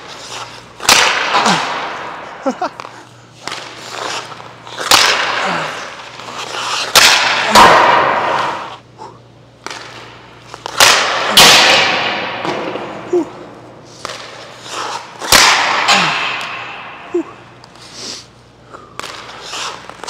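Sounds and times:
hockey stick shot cracks: 0.0s - 8.8s, 9.6s - 13.1s, 14.0s - 17.0s, 18.9s - 20.0s.

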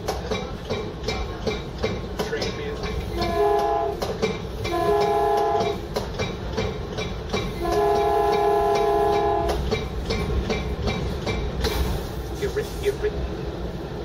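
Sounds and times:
wheels clicking on rails: 0.0s - 13.3s
train rumbling: 0.0s - 14.0s
train horn blasts: 3.2s - 4.0s, 4.7s - 5.8s, 7.6s - 9.6s.

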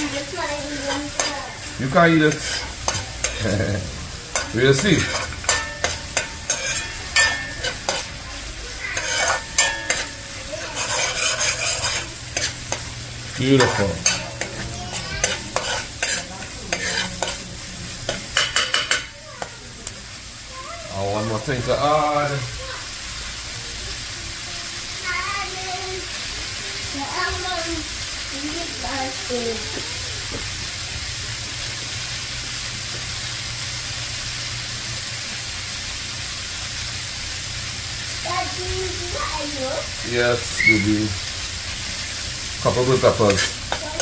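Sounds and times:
curry bubbling and sizzling: 0.0s - 44.0s
metal spoon scraping a pot: 2.3s - 3.5s, 4.3s - 8.2s, 8.9s - 17.4s, 43.0s - 44.0s.

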